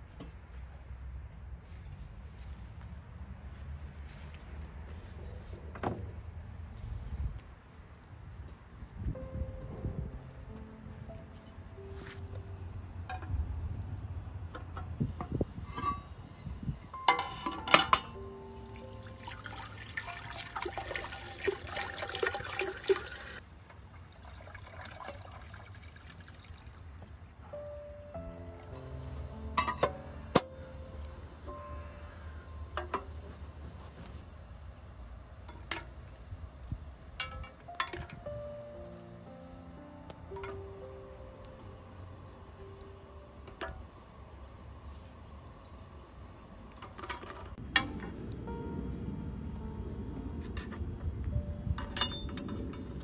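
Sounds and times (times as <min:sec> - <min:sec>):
water pouring into metal container: 0:18.6 - 0:27.0.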